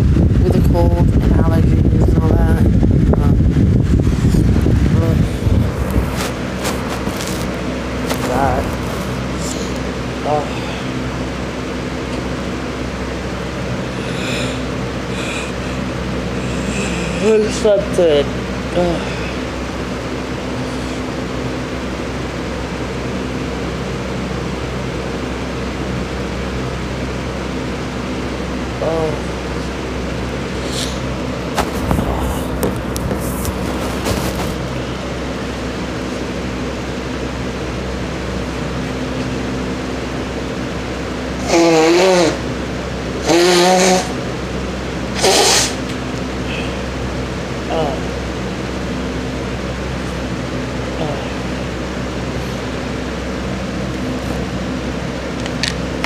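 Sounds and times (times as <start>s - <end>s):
fan whirring with low hum: 0.0s - 56.0s
woman blowing her nose: 41.4s - 42.4s, 43.2s - 44.2s, 45.2s - 45.8s.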